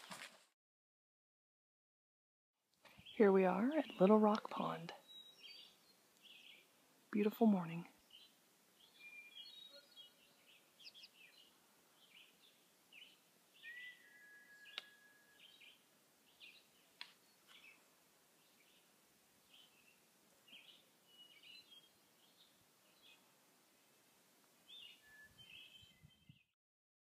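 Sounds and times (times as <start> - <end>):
high bird chirps: 8.1 - 12.4, 13.0 - 16.7
whistled bird note: 13.6 - 15.8, 24.8 - 26.5.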